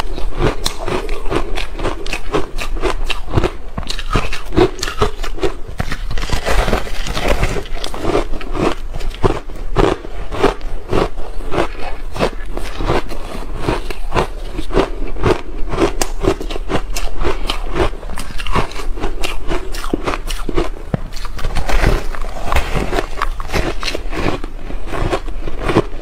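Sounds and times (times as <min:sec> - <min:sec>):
ice bar crunching while chewed: 0:00.0 - 0:26.0.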